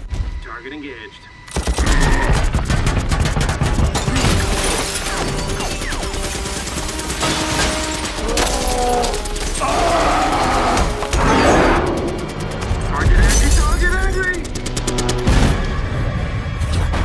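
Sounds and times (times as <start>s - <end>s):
orchestral music: 0.0s - 17.0s
rounds hitting metal: 1.5s - 15.6s
heavy cannon gunfire: 1.5s - 15.9s
glass shattering: 4.0s - 5.8s.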